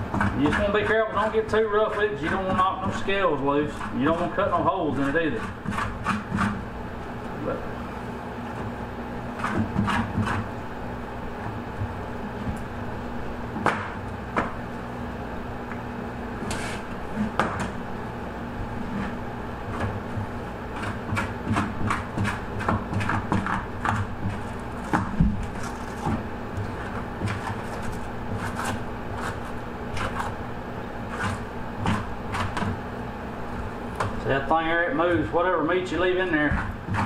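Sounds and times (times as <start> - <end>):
tool scraping fish skin: 0.0 - 6.6, 9.4 - 10.5, 16.4 - 17.8, 20.7 - 30.4, 31.0 - 32.8, 35.0 - 37.0.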